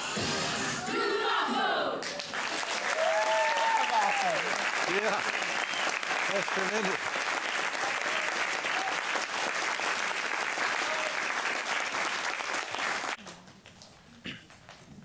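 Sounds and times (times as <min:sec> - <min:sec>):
audience applauding: 0:02.0 - 0:13.5.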